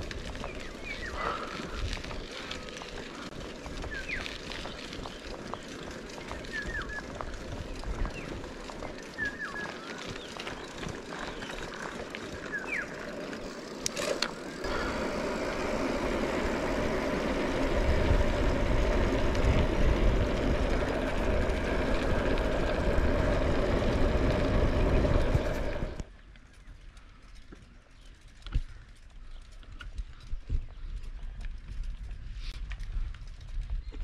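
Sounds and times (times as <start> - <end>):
bike tyres on rough trail: 0.0 - 34.0
wind on microphone: 14.7 - 26.0.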